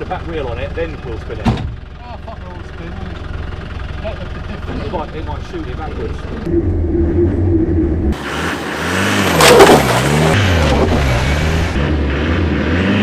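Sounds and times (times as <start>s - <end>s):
car engine revving: 5.7s - 13.0s.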